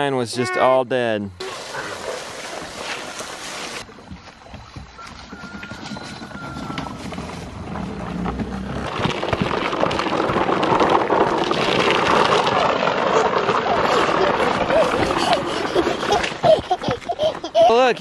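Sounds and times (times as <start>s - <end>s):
footsteps on wooden planks: 2.0s - 18.0s
toy truck wheels knocking: 8.1s - 18.0s.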